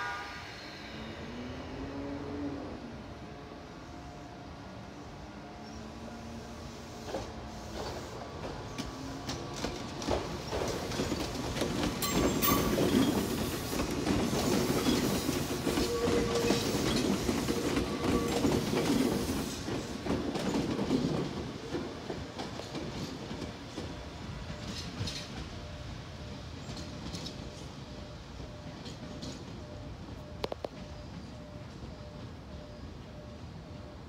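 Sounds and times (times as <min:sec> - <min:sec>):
train wheels clacking over rail joints: 0:07.0 - 0:25.8.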